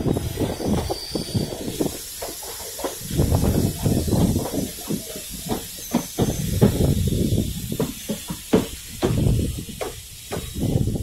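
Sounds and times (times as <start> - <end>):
train running hiss: 0.0 - 11.0
wind buffeting microphone: 0.0 - 11.0.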